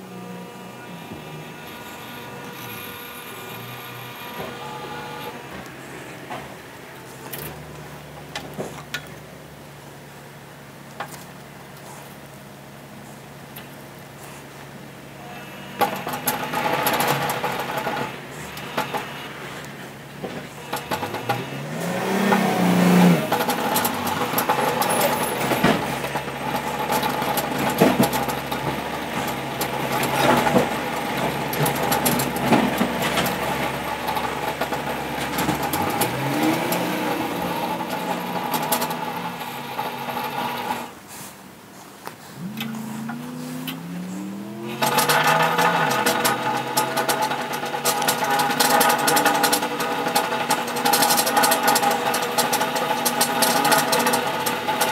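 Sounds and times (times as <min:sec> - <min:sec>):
bead roller motor whining: 0:00.0 - 0:07.8, 0:15.1 - 0:41.0, 0:42.2 - 0:54.9
metal clicking in rollers: 0:15.8 - 0:41.0, 0:42.3 - 0:54.9.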